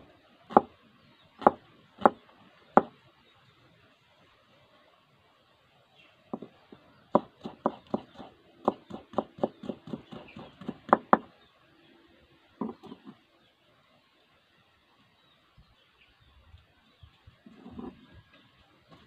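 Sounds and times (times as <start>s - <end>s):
knife chopping on wooden board: 0.5s - 0.7s, 1.4s - 2.2s, 6.3s - 6.5s, 7.2s - 11.3s, 12.6s - 13.1s.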